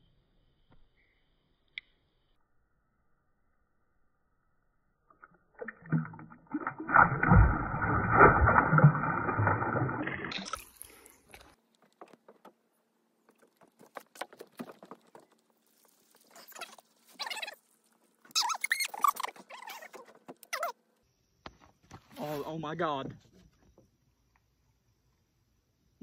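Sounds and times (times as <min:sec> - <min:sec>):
water sloshing and splashing: 0:05.2 - 0:12.5, 0:13.2 - 0:17.4.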